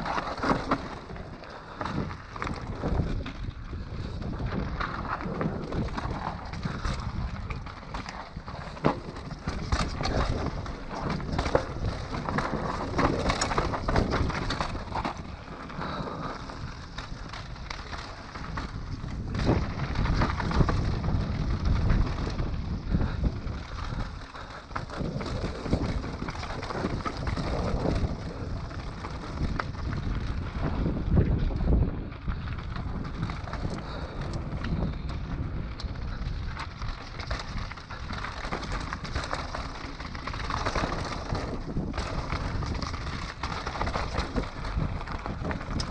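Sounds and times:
bike knocking on rocks: 0:00.0 - 0:01.2, 0:05.7 - 0:06.6, 0:08.1 - 0:16.0
bike rattling: 0:00.0 - 0:45.9
bike tyres rolling over stones: 0:00.0 - 0:45.9
wind buffeting microphone: 0:00.0 - 0:45.9.

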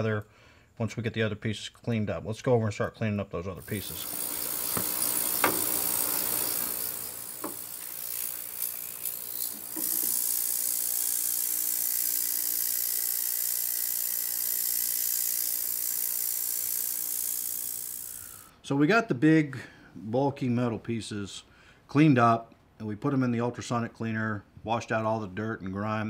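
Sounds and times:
ultrasonic cleaner hissing: 0:03.6 - 0:14.1.

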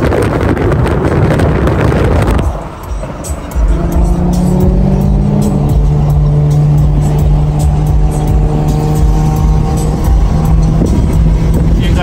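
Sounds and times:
car engine and road hum: 0:00.0 - 0:12.0
music with steady beat: 0:02.2 - 0:11.8.

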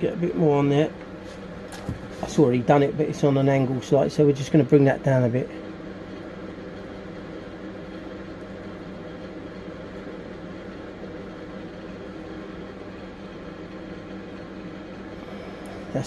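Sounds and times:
steady mechanical hum: 0:00.0 - 0:16.0.

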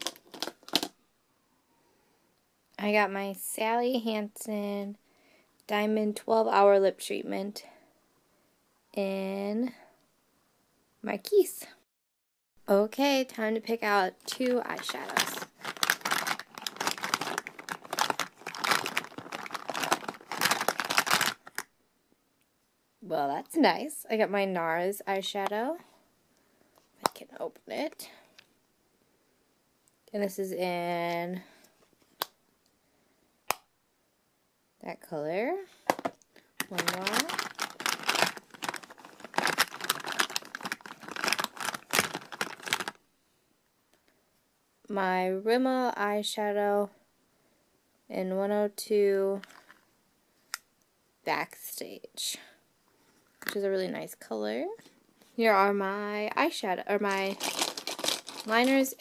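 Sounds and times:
plastic jars clattering and rustling: 0:00.0 - 0:00.9, 0:14.2 - 0:21.6, 0:35.9 - 0:43.0, 0:57.1 - 0:59.0.

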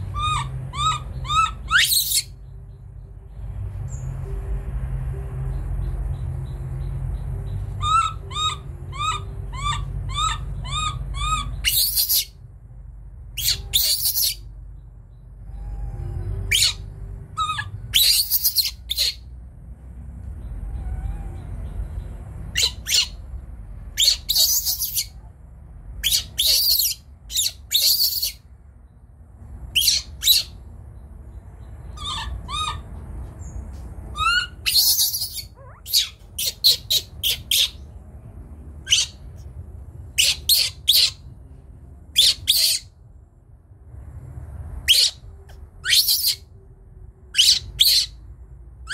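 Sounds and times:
baby monkey squealing: 0:00.0 - 0:02.4, 0:07.7 - 0:12.4, 0:13.4 - 0:14.4, 0:15.5 - 0:19.2, 0:20.6 - 0:21.7, 0:22.5 - 0:23.2, 0:24.0 - 0:25.2, 0:26.0 - 0:28.4, 0:29.7 - 0:30.6, 0:31.9 - 0:32.9, 0:34.1 - 0:37.8, 0:38.8 - 0:39.2, 0:40.1 - 0:41.3, 0:42.1 - 0:42.9, 0:44.8 - 0:45.2, 0:45.8 - 0:46.5, 0:47.3 - 0:48.2.

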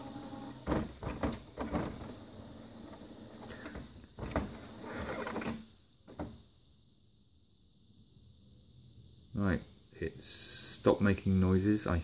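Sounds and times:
printer whirring: 0:00.0 - 0:05.6
printer mechanism clunking: 0:00.1 - 0:02.1.

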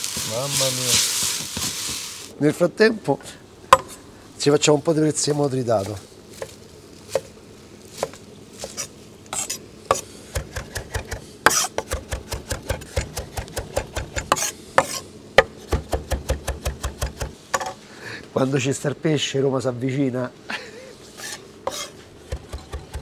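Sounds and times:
knife chopping on wooden board: 0:08.0 - 0:17.7, 0:21.7 - 0:23.0.

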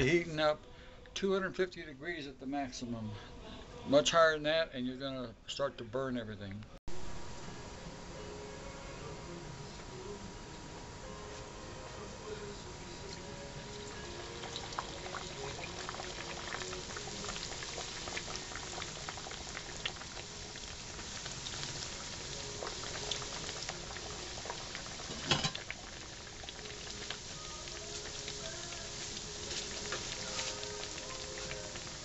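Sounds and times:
dough deep-frying in oil: 0:13.0 - 0:32.0.

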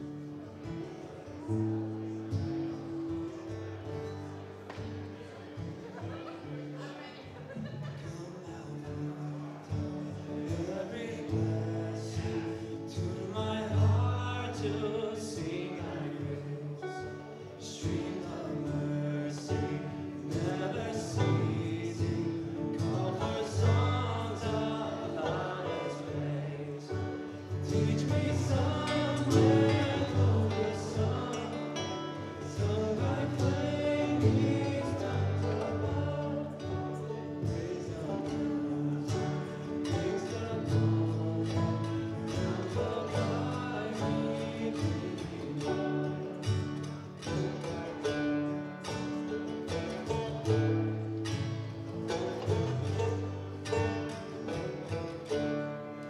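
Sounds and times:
guitars and banjo: 0:00.0 - 0:56.0
men singing together: 0:08.3 - 0:48.3.

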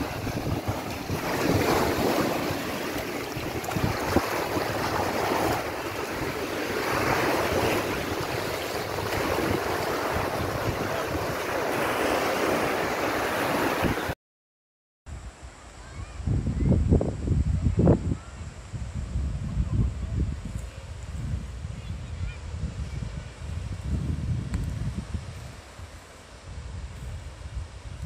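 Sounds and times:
wind buffeting microphone: 0:00.0 - 0:14.1, 0:15.1 - 0:28.0
sea waves washing onto shore: 0:00.0 - 0:14.2.

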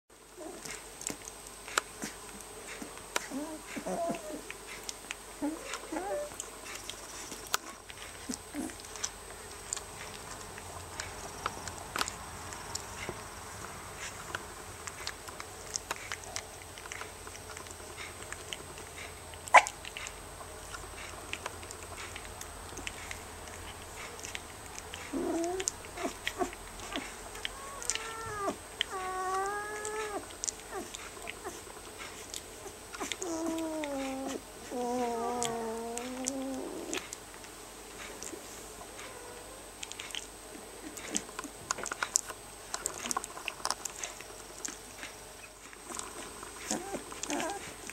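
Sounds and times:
puppies whimpering and squeaking: 0:02.0 - 0:13.2, 0:20.7 - 0:37.2, 0:38.0 - 0:42.2, 0:42.8 - 0:47.9
puppy wavering whines: 0:03.2 - 0:04.5, 0:05.4 - 0:06.5, 0:25.0 - 0:31.6, 0:32.6 - 0:37.2, 0:38.2 - 0:39.7, 0:45.9 - 0:47.8.

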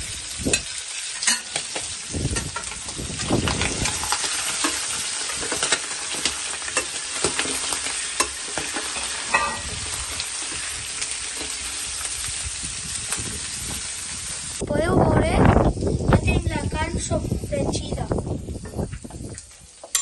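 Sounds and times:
meat sizzling in oil: 0:00.0 - 0:14.6, 0:15.6 - 0:20.0
sharp crackles and clicks: 0:00.2 - 0:14.6, 0:17.9 - 0:20.0
scrape in a pan: 0:03.8 - 0:11.9.

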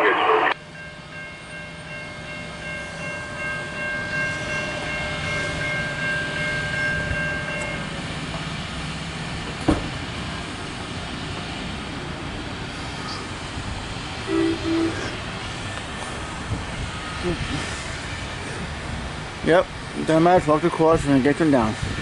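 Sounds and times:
train rumbling on rails: 0:00.5 - 0:22.0
train horn chord: 0:14.2 - 0:15.4.

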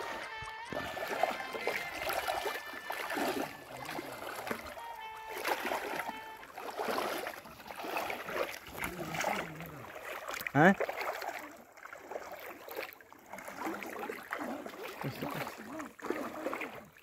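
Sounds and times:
plastic basin pushed through water: 0:00.0 - 0:17.0
wading through shallow water: 0:00.0 - 0:17.0.

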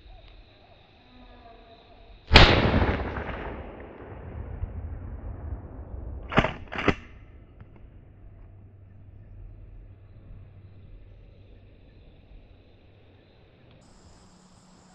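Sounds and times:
shotgun blast echoing: 0:02.3 - 0:08.1.

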